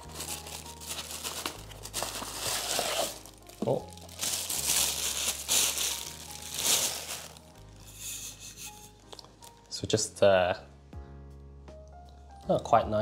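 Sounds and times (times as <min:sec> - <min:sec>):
packaging crinkling and rustling: 0:00.0 - 0:07.5
packaging tearing: 0:00.0 - 0:07.5.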